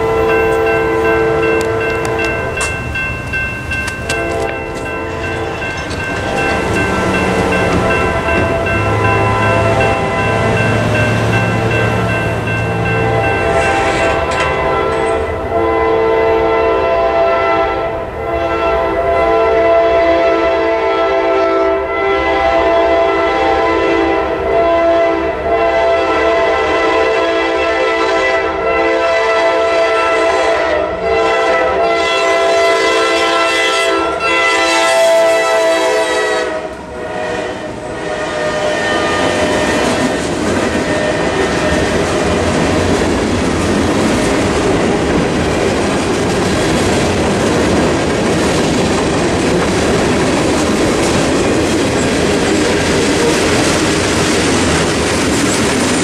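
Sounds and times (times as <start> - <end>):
train horn blasts: 0.0 - 2.8, 3.9 - 42.6
freight cars rumbling and clacking: 0.0 - 15.4, 39.0 - 56.0.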